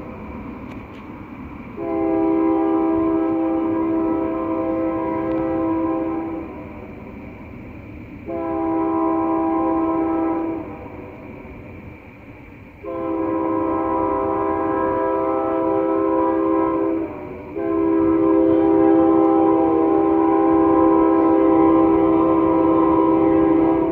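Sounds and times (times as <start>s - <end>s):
low rumble of train: 0.0s - 23.9s
locomotive air horn chord: 1.8s - 6.7s, 8.2s - 11.2s, 12.8s - 23.9s.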